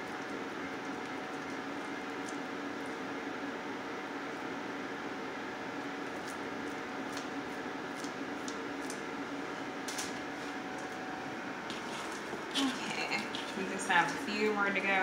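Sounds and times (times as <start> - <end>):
soft wet squishes of meat: 0.0 - 3.2
steady background hum: 0.0 - 15.0.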